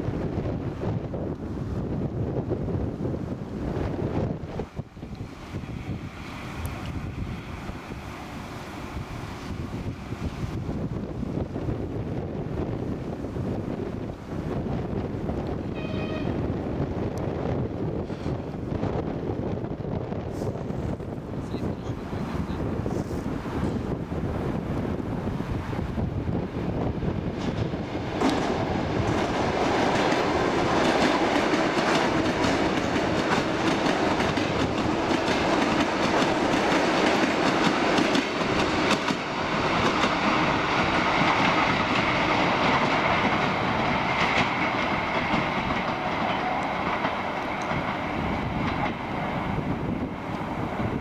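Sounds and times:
train wheels clattering: 27.3 - 49.3.

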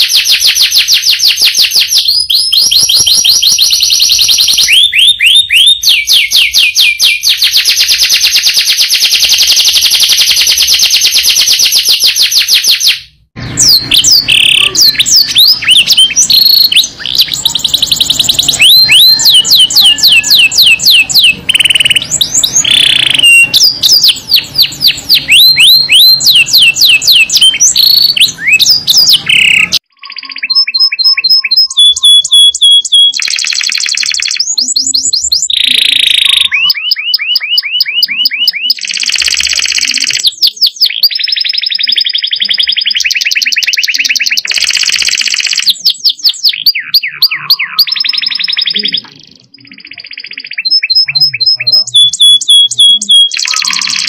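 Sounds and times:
canaries singing: 0.0 - 54.0.

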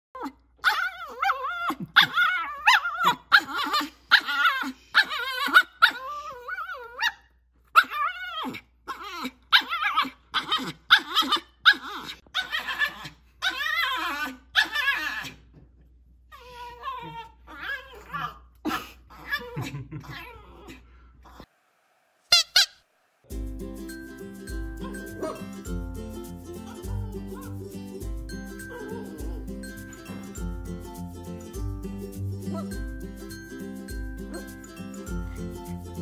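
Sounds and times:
puppy barking and whining: 0.2 - 15.4, 16.3 - 21.5, 22.3 - 22.9, 24.8 - 25.7, 28.6 - 30.2.

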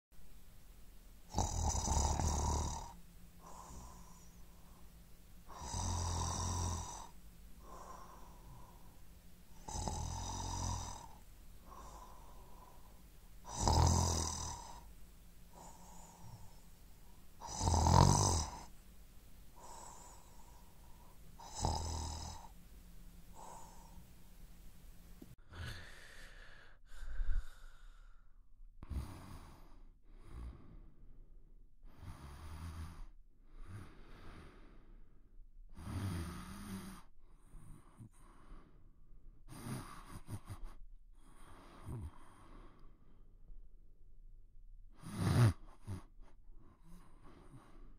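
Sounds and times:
man snoring: 1.2 - 4.8, 5.4 - 14.9, 15.5 - 16.7, 17.4 - 18.7, 19.6 - 22.6, 23.3 - 24.0, 25.4 - 28.0, 28.8 - 30.9, 31.9 - 34.9, 35.7 - 38.6, 39.5 - 42.8, 45.0 - 46.1.

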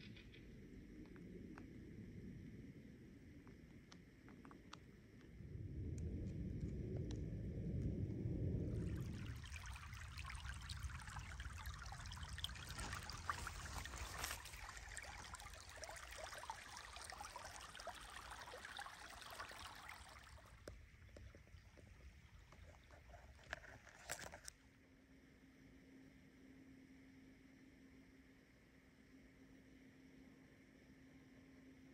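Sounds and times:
low rumble: 4.9 - 23.2
stream trickling over stones: 8.6 - 24.5.

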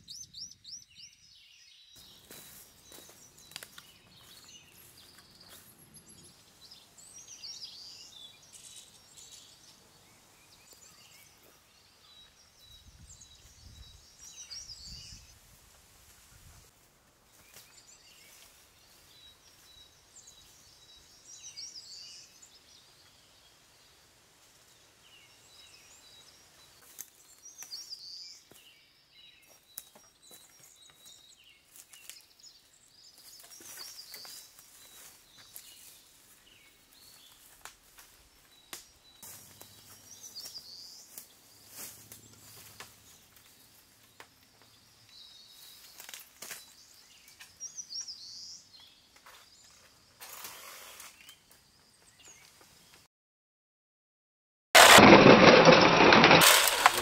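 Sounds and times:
birds chirping: 0.0 - 15.4, 24.7 - 53.1
footsteps on leaf litter: 2.0 - 5.8, 29.4 - 32.3, 33.1 - 44.8, 45.5 - 47.4, 54.8 - 57.0.

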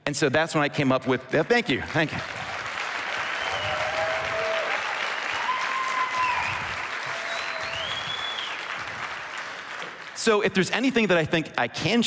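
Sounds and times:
audience applauding: 1.8 - 10.4.

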